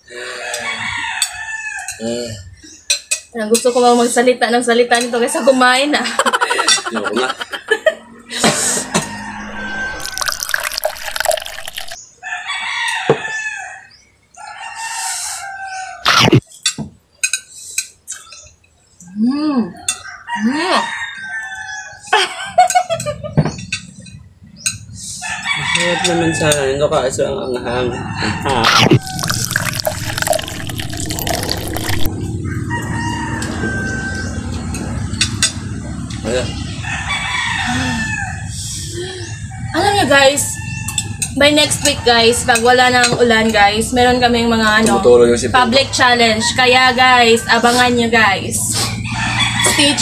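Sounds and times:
rooster crowing: 0.2 - 2.0, 12.2 - 16.0, 20.0 - 22.0, 25.2 - 26.7, 27.7 - 30.4, 31.2 - 34.8, 36.8 - 38.6, 49.0 - 50.0
loud slurp: 9.9 - 12.0, 28.5 - 32.1.

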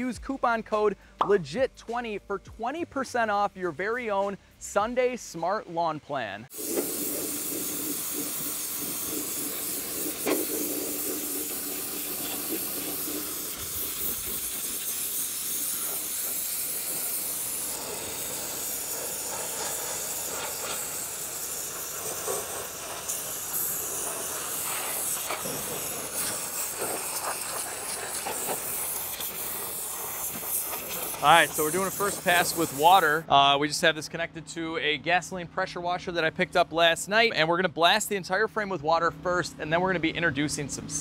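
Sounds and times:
pressure washer spraying metal: 6.5 - 33.2.

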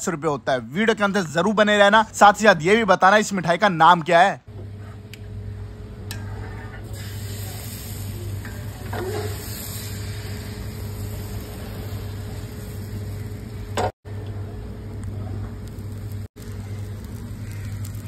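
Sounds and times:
batter sizzling on a griddle: 6.2 - 13.9, 15.2 - 18.0.

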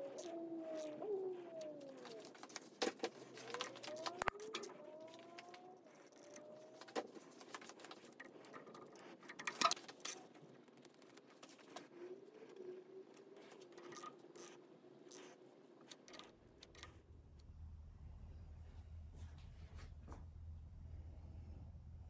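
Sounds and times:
faint rising and falling tones: 0.0 - 2.4
ratchet and socket clinks: 1.1 - 1.6, 13.8 - 17.4.

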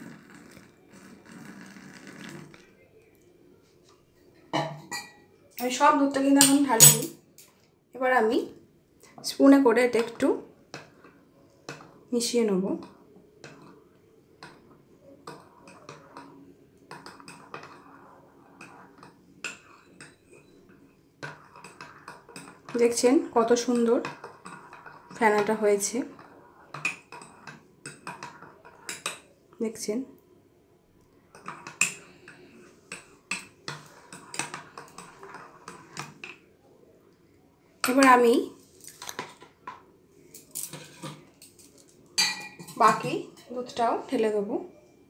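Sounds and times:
spoon clinking in mug: 6.4 - 7.2, 42.2 - 43.1.

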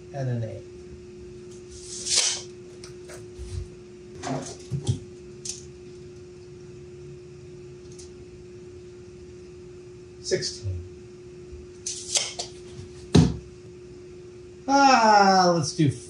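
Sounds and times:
steady hum: 0.0 - 16.0
knocks on wood: 13.1 - 13.5.

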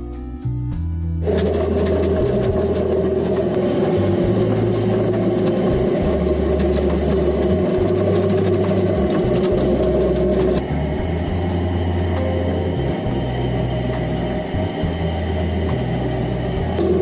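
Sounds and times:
water pouring: 1.2 - 11.7
motor hum: 1.2 - 17.0.

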